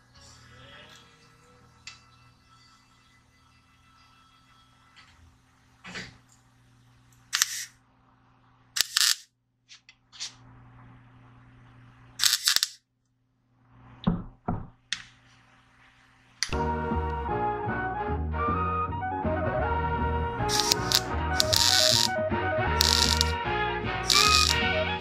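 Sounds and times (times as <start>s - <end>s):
music: 0.0s - 5.4s, 16.5s - 25.0s
welding arc crackling bursts: 7.4s - 7.7s, 8.8s - 9.3s, 12.2s - 12.8s, 20.5s - 22.2s, 22.8s - 23.4s, 24.0s - 24.6s.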